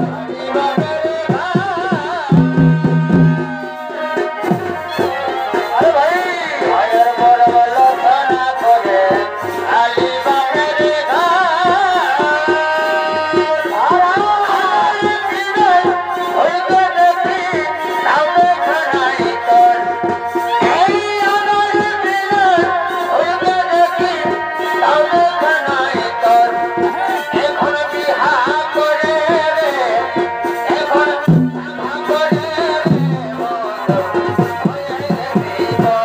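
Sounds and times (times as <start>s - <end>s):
fast dense drumming: 0.0s - 5.0s, 31.0s - 36.0s.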